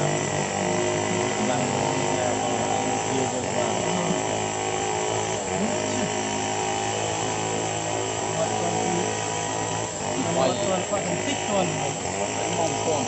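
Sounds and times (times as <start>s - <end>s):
motor drone: 0.0s - 13.0s.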